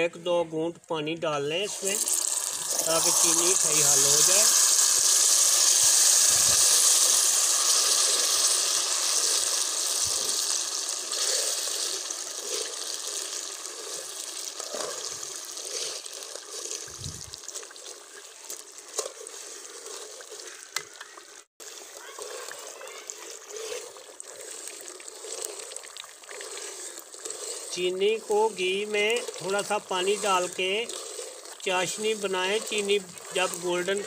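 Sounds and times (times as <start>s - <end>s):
ghee and sugar sizzling in a pan: 1.4s - 34.0s
metal spatula scraping a pan: 17.5s - 34.0s.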